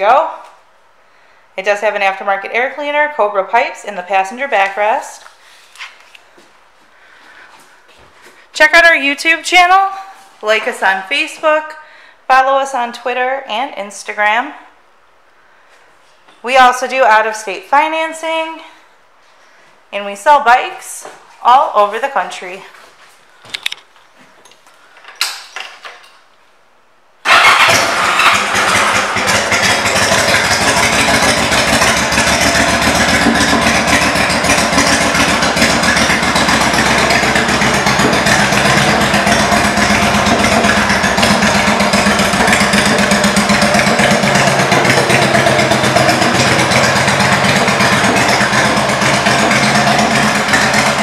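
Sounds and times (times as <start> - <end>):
motorcycle engine idling: 27.3 - 51.0.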